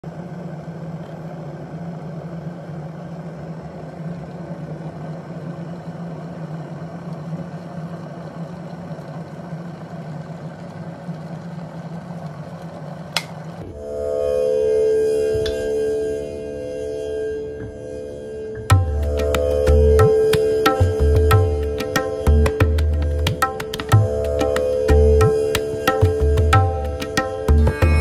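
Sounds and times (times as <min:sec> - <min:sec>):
kettle water bubbling: 0:03.8 - 0:13.6.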